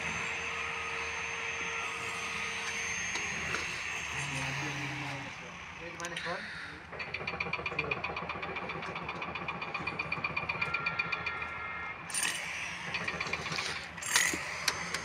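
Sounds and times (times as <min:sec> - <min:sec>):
engine idling with ticking: 0:00.0 - 0:15.0.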